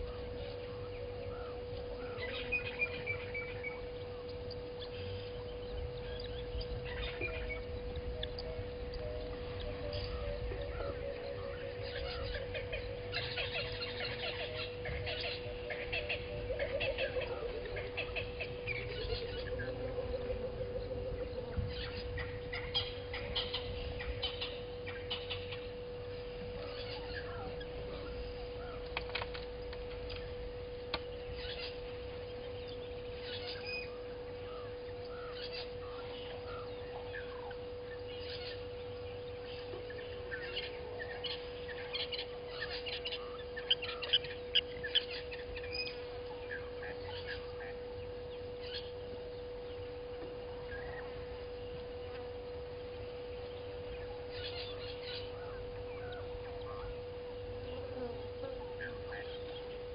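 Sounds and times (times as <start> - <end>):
steady hum: 0.0 - 59.9
wild birds calling: 0.0 - 59.9.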